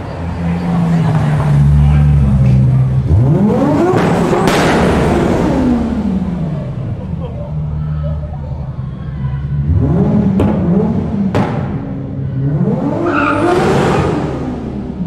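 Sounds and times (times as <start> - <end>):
car engine revving: 0.2 - 7.1, 9.4 - 15.0
sharp exhaust pops: 3.8 - 5.5, 11.3 - 11.9.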